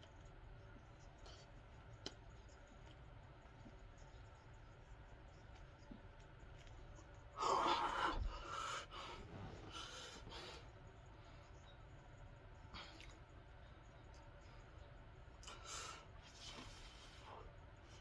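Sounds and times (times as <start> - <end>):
man breathing heavily: 7.3 - 11.2.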